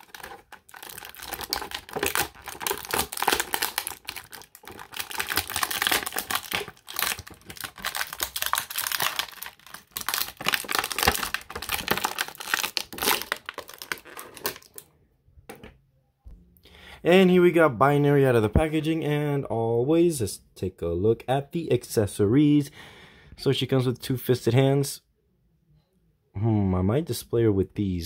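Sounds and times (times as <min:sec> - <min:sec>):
plastic bag crinkling: 0:00.0 - 0:14.8.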